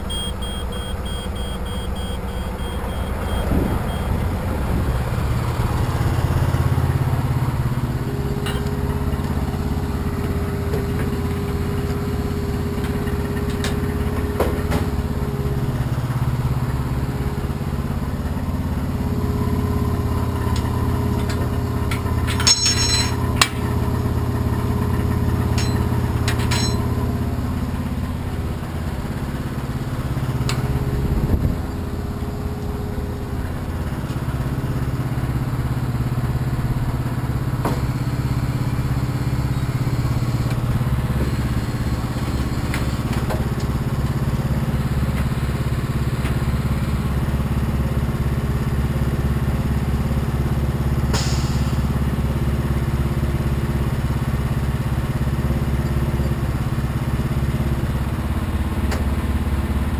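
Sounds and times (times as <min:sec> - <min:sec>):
diesel truck engine idling: 0:00.0 - 0:59.9
air hiss: 0:51.1 - 0:51.9.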